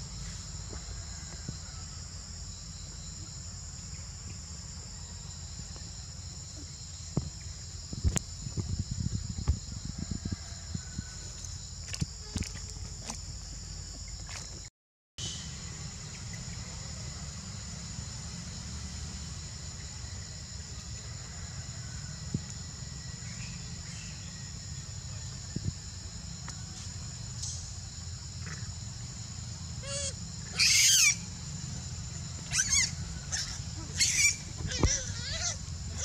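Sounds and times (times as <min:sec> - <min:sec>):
insects droning: 0:00.0 - 0:36.0
high wavering animal squeal: 0:29.8 - 0:31.2, 0:32.5 - 0:36.0.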